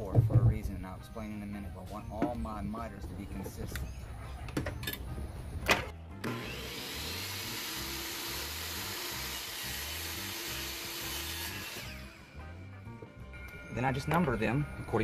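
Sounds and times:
miter saw motor running: 6.2s - 12.3s.

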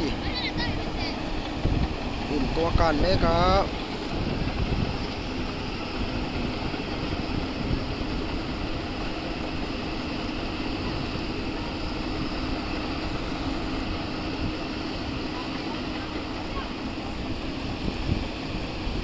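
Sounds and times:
boat engine running: 0.0s - 19.0s.

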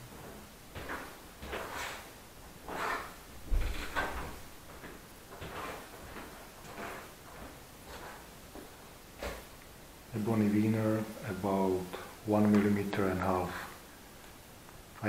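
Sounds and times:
knocks and scrapes: 0.1s - 9.5s
heavy thump: 3.4s - 5.7s.

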